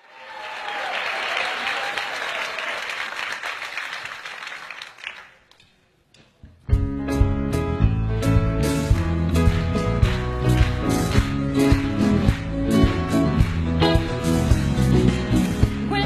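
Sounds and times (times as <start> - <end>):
audience applauding: 0.0 - 5.6, 8.6 - 15.9
band playing loud music: 6.8 - 16.0.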